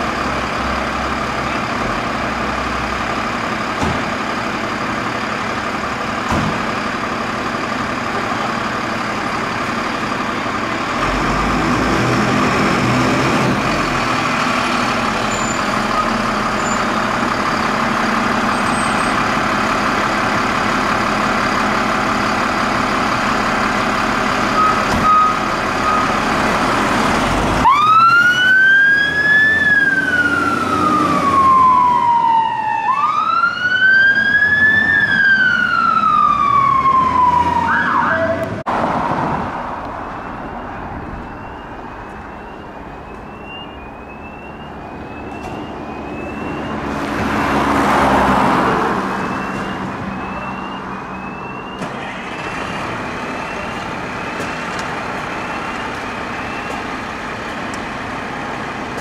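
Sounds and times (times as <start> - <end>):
fire engine engine running: 0.0 - 59.0
siren wailing: 27.6 - 38.6, 40.0 - 54.4.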